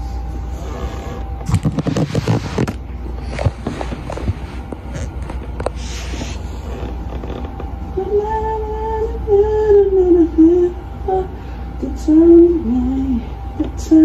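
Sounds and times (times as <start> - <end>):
steady low hum: 0.0 - 14.0
woman singing: 7.9 - 14.0.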